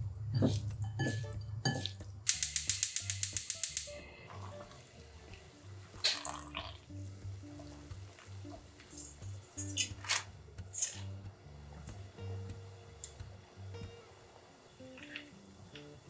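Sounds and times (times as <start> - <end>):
water boiling in a pot: 0.0 - 16.0
hands squishing food in a bowl: 0.2 - 2.2
water splashing and dripping: 0.2 - 3.8
fast sharp clicks: 2.2 - 4.0.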